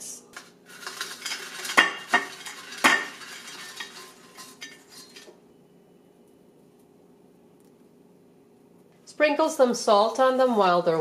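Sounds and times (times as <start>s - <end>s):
fries clattering onto plate: 0.3s - 5.4s
light rattling of fries: 0.3s - 5.4s.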